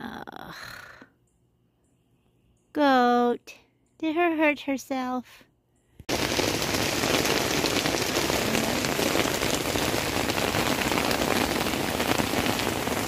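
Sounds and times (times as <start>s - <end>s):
rain on a tent: 6.1s - 13.0s.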